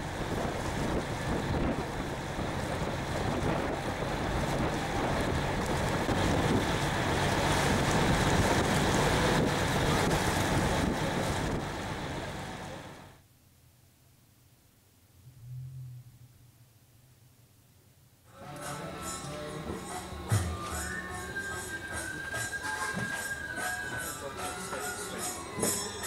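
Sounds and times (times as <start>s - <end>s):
wind buffeting microphone: 0.0s - 12.6s
rushing water: 0.0s - 13.1s
boat engine humming: 0.0s - 13.2s, 18.3s - 26.0s.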